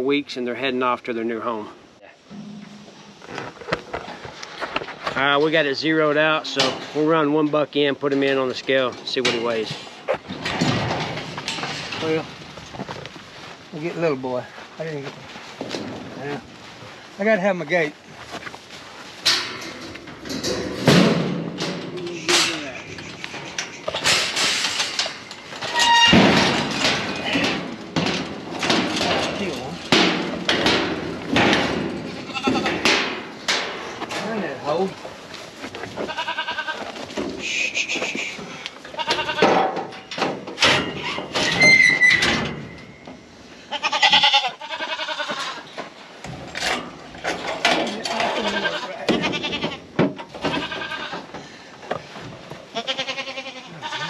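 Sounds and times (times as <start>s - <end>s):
metal gate clanking and rattling: 2.3s - 3.5s, 6.0s - 12.6s, 19.2s - 34.9s, 39.0s - 43.2s, 44.1s - 51.2s
goats bleating: 32.1s - 32.9s, 35.8s - 39.6s, 43.6s - 45.7s, 48.1s - 51.3s, 52.7s - 54.0s.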